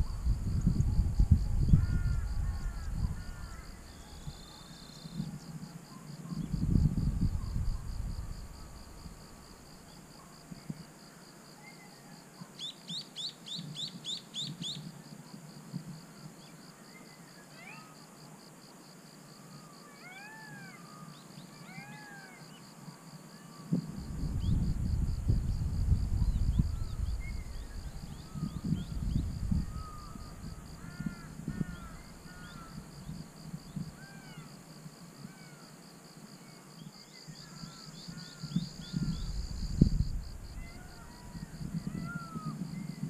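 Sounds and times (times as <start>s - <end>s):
wind rumbling on microphone: 0.0s - 10.9s, 23.7s - 34.4s, 37.3s - 43.0s
pulsing insect drone: 0.0s - 11.3s, 20.6s - 43.0s.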